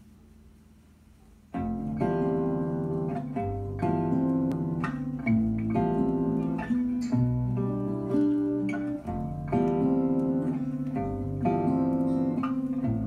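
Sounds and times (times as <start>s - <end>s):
faint hum: 0.0s - 13.0s
guitar music from vinyl record: 1.4s - 13.0s.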